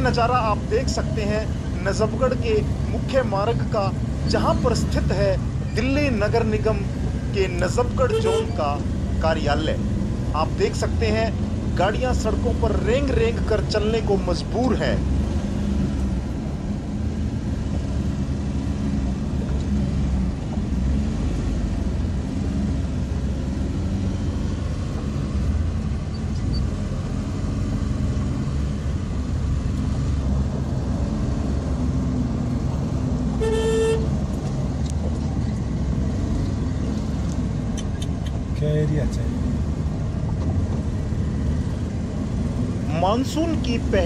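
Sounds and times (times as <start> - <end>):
car and bus engines rumbling: 0.0 - 44.0
car horn toot: 8.0 - 8.6, 33.4 - 34.1.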